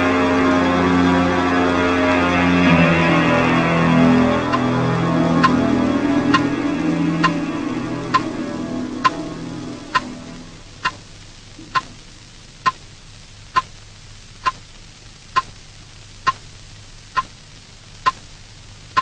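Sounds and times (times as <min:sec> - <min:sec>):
low music chord: 0:00.0 - 0:10.8
faint steady hum: 0:00.0 - 0:19.0
clock ticking with ringing ping: 0:05.4 - 0:05.6, 0:07.2 - 0:08.4.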